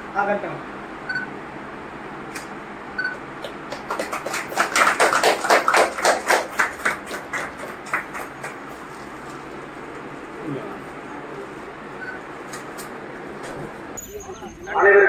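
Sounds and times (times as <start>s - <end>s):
people clapping: 3.2s - 9.4s.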